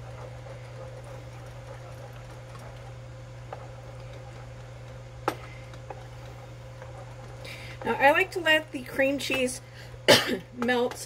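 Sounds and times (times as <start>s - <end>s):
steady low hum: 0.0s - 11.0s.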